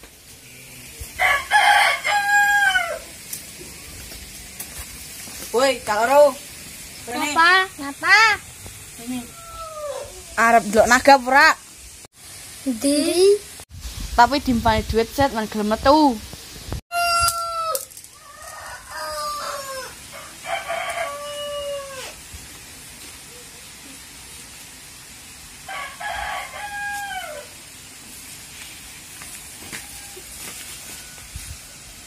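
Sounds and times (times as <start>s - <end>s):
rooster crowing: 1.1s - 3.2s, 9.2s - 10.3s, 16.9s - 22.2s, 25.6s - 27.6s, 29.6s - 32.0s.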